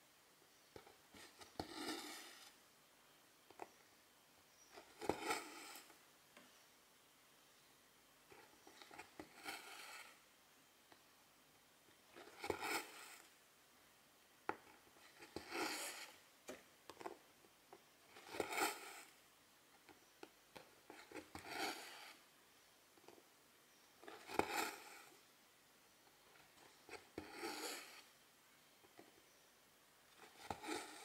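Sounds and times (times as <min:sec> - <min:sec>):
thread rasping through fabric: 0:26.6 - 0:28.1.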